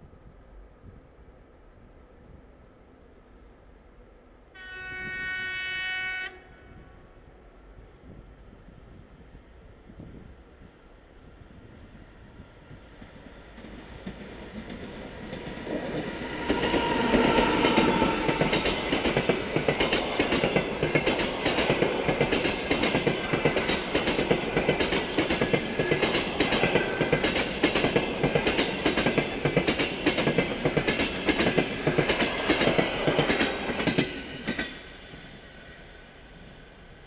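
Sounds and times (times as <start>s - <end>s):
train wheels clickety-clack: 8.0s - 35.8s.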